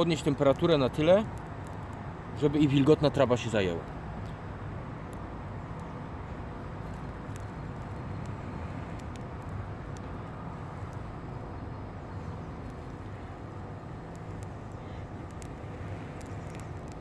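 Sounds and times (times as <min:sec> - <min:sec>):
low outdoor rumble: 0:00.0 - 0:17.0
faint clicks: 0:06.8 - 0:10.1, 0:14.0 - 0:17.0.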